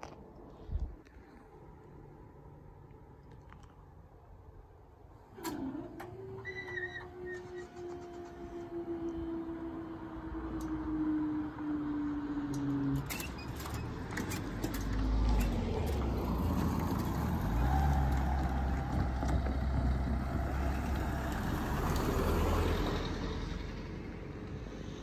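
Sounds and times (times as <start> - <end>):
car driving past: 15.0 - 25.0.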